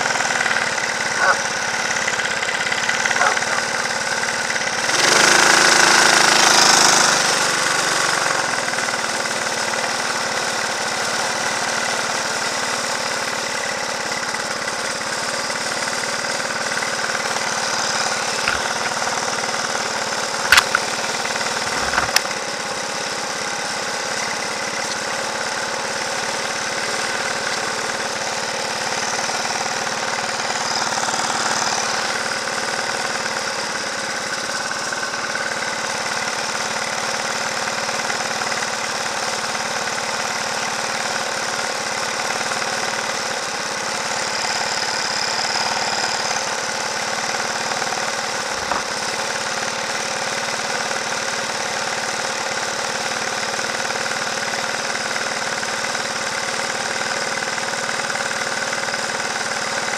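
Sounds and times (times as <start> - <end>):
go-kart engine running: 0.0 - 59.9
sharp clicks: 20.4 - 21.0.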